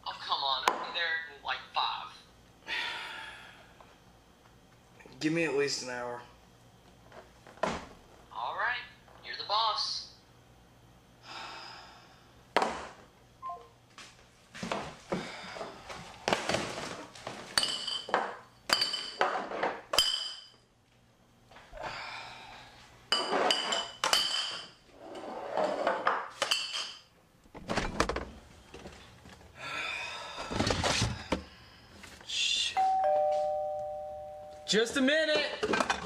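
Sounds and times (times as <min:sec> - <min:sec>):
glass bottles clinking: 0:17.6 - 0:19.3, 0:19.9 - 0:20.6
two-note doorbell chime: 0:32.8 - 0:34.8.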